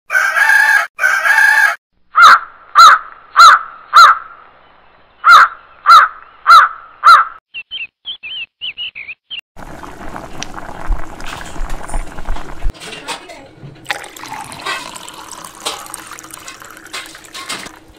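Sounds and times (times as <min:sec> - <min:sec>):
rooster crowing: 0:00.1 - 0:01.8
small high bird chirps: 0:07.5 - 0:09.4
pan of curry bubbling: 0:09.6 - 0:12.7.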